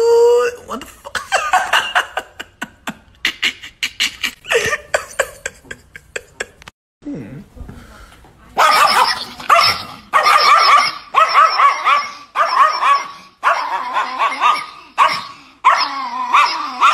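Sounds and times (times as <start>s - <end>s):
small dog yapping: 8.6s - 16.9s.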